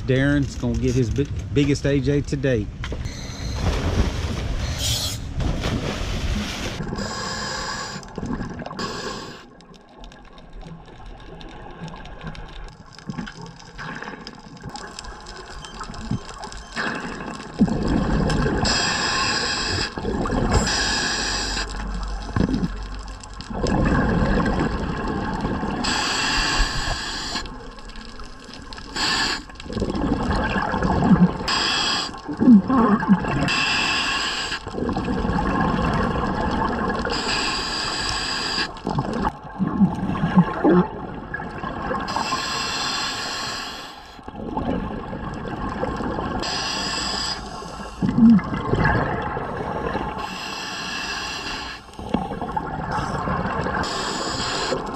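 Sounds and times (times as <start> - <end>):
exhaled bubbles gurgling: 6.1 - 54.9
regulator hissing inhale: 7.0 - 8.1, 8.8 - 9.5, 25.8 - 27.5, 28.9 - 29.5, 37.1 - 38.8, 42.1 - 44.2, 46.4 - 48.0, 50.2 - 52.0, 53.8 - 54.9.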